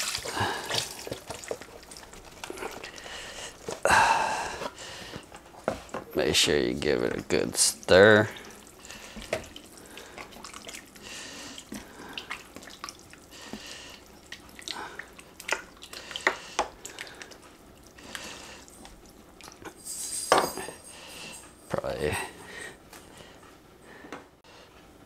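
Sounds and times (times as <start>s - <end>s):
spoon stirring liquid: 6.9s - 19.7s.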